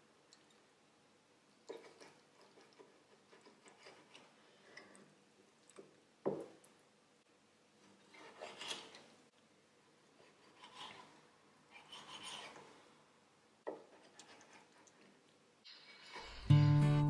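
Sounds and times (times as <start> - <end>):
knife scraping cut: 8.1 - 9.0, 10.2 - 11.1, 11.8 - 12.7.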